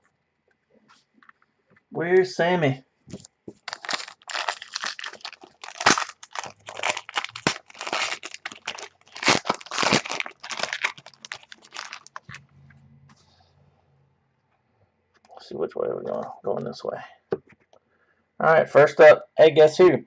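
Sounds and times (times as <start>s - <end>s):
foil wrapper tearing and crinkling: 3.6s - 12.4s.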